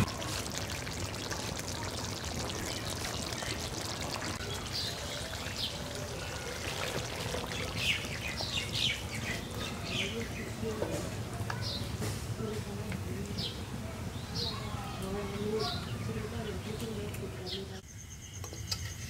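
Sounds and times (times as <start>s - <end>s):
curry bubbling in a pan: 0.0s - 10.0s.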